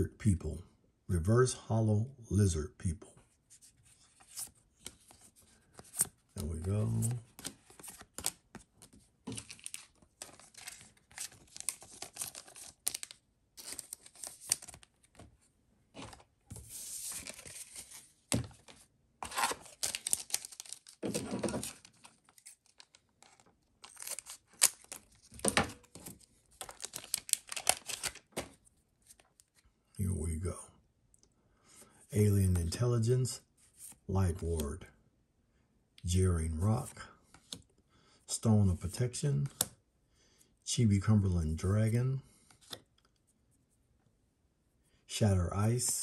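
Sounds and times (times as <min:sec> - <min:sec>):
cards rustling and tapping: 0:03.9 - 0:29.6
card pack wrapper crinkling: 0:05.7 - 0:15.3, 0:16.0 - 0:29.3.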